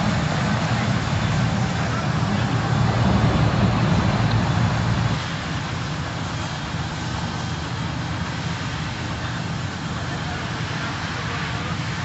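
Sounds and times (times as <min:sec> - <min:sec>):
low engine rumble: 0:00.0 - 0:12.0
wide vehicle hiss: 0:00.0 - 0:12.0.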